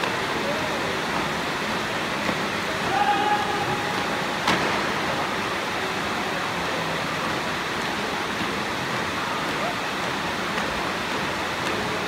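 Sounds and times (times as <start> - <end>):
crowd murmur in echoing hall: 0.0 - 12.0
sharp smack: 4.4 - 5.0.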